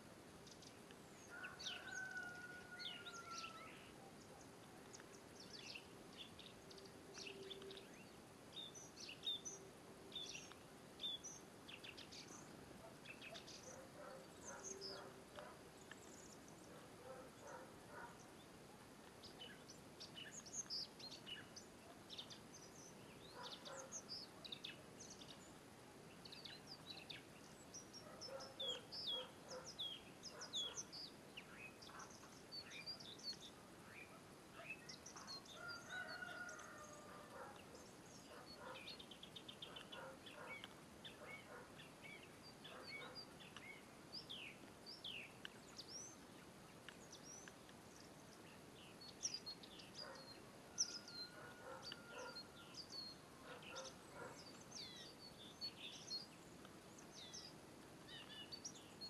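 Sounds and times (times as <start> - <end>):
lower bird call: 6.7 - 8.1.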